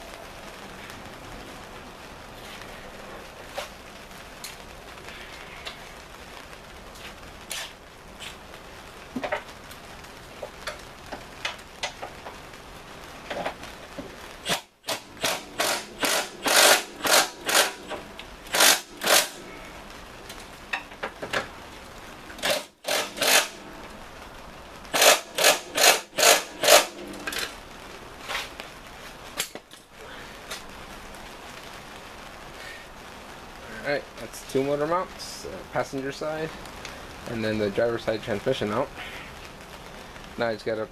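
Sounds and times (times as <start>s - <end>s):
ratchet wrench ratcheting: 14.5s - 19.4s, 22.4s - 23.6s, 24.9s - 27.5s.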